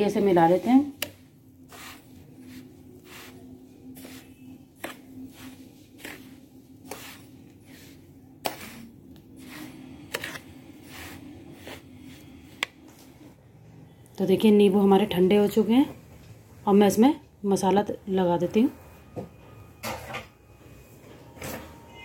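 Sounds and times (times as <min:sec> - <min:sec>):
spoon scraping dry mix in bowl: 0:00.0 - 0:13.3.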